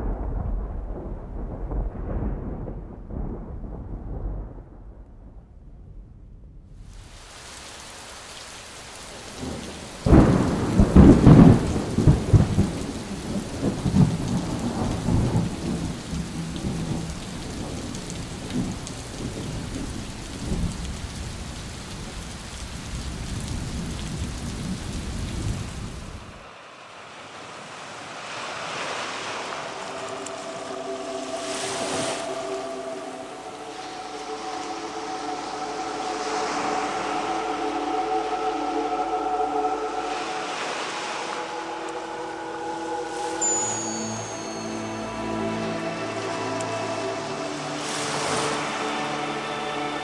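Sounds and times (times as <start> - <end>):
thunder rolling: 0.0 - 6.9, 9.4 - 26.4
rain hiss: 6.8 - 50.0.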